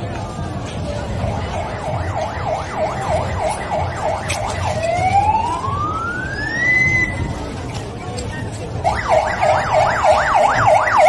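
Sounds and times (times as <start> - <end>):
emergency vehicle siren: 1.0 - 7.4, 8.8 - 11.0.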